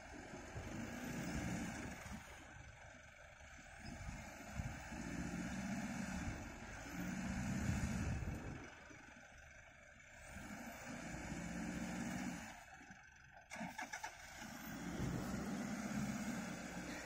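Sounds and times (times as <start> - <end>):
engine revving in sand: 0.0 - 2.5, 3.6 - 8.7, 10.2 - 12.7, 13.5 - 17.0.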